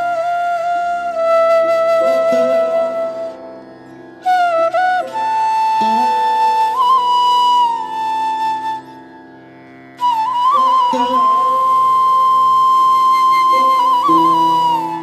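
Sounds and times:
slow flute melody: 0.0 - 9.2, 10.0 - 15.0.

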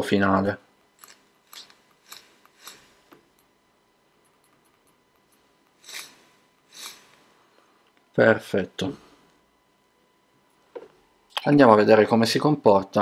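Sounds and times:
vape coil crackling and sizzling: 5.8 - 7.3.

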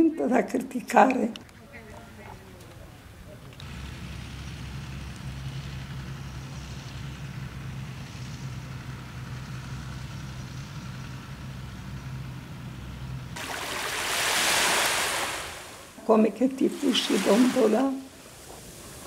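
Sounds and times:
tractor engine running: 1.4 - 13.9
surf rushing: 13.4 - 19.0.

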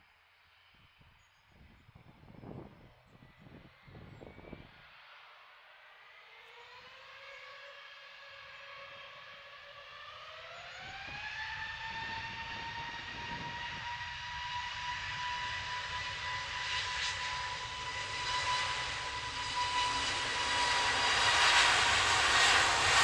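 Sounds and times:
jet engines spooling up: 6.0 - 23.0.

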